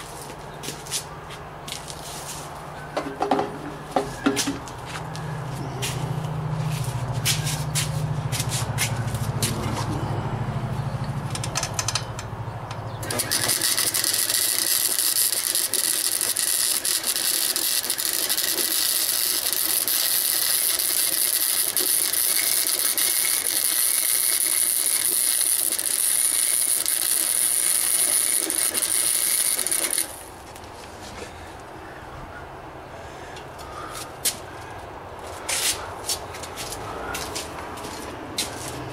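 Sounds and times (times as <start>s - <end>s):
scattered clicks: 11.0s - 30.3s
arc welder hissing: 13.0s - 30.6s.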